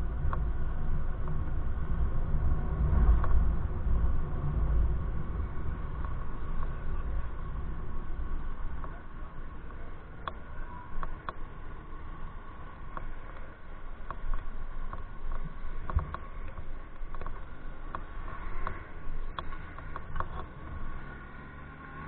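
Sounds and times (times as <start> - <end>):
bike road rumble: 0.0 - 22.0
faint steady whine: 0.0 - 22.0
wind: 0.0 - 22.0
small clicks and rattles: 12.9 - 21.0.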